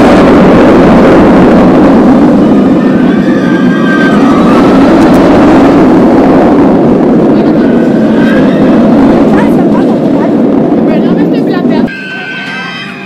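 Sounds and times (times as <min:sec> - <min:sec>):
loud steady rushing noise: 0:00.0 - 0:13.0.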